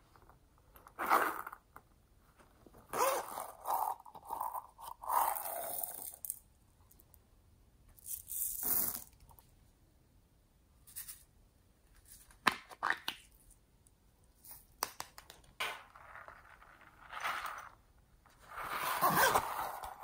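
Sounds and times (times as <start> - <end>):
zipper pulled open: 1.0 - 1.6, 2.9 - 4.4, 18.4 - 20.0
plastic beads rattling: 5.1 - 6.4.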